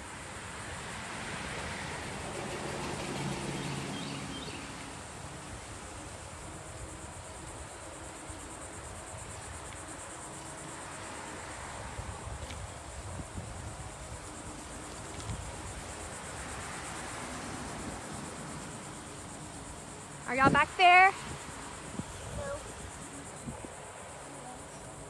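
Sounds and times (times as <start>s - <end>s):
insects droning chorus: 0.0s - 25.0s
wind noise from cycling: 4.3s - 25.0s.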